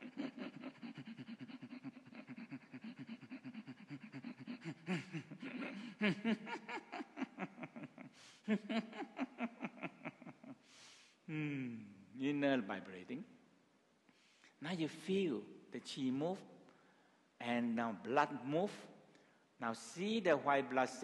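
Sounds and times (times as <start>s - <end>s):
man laughing: 0.0s - 10.7s.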